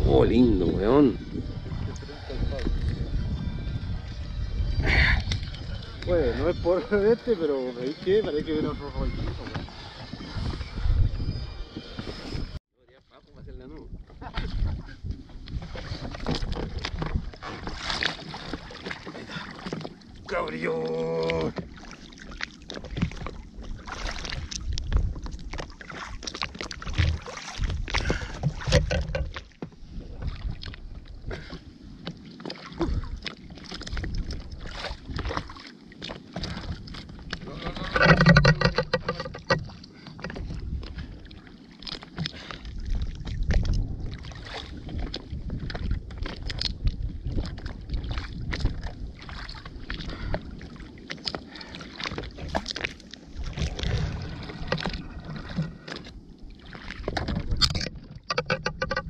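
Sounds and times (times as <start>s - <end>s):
wind buffeting microphone: 0.0s - 12.6s, 13.3s - 25.8s, 26.4s - 32.0s, 32.8s - 35.6s, 36.2s - 41.5s, 42.1s - 59.0s
fishing gear knocks and clicks: 26.3s - 29.8s, 37.3s - 40.6s, 57.1s - 59.0s.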